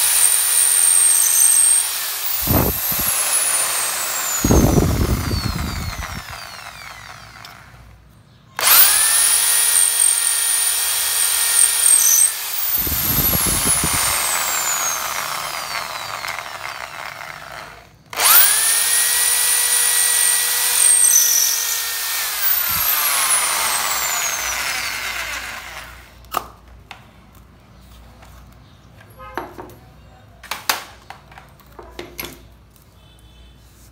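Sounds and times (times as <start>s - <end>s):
electric drill whining: 0.0s - 7.9s, 8.6s - 26.2s.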